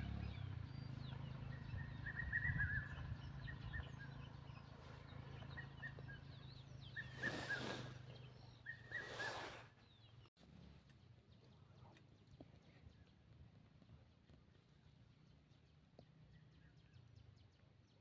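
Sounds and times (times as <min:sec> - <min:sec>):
birds chirping: 0:00.0 - 0:18.0
brief rushes of noise: 0:07.1 - 0:08.0.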